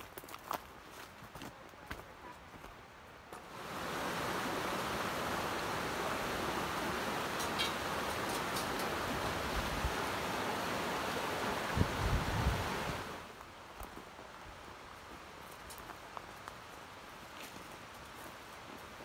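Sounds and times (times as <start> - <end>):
flowing water rushing: 3.4 - 13.4.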